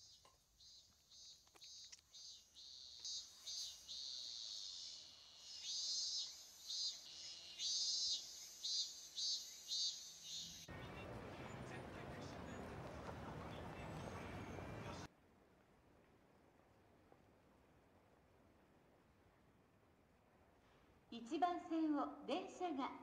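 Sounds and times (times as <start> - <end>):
insects chirping: 0.0 - 10.7
city street noise: 10.4 - 15.1.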